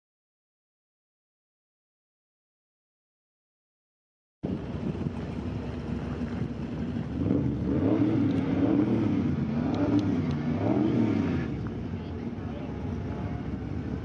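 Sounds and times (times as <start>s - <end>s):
car engine running: 4.4s - 14.0s.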